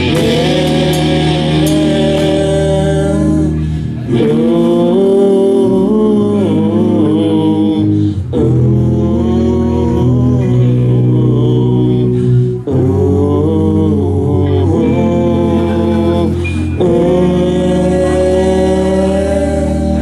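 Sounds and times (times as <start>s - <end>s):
drums: 0.0s - 11.0s
bass guitar: 0.0s - 20.0s
electric guitar: 0.0s - 20.0s.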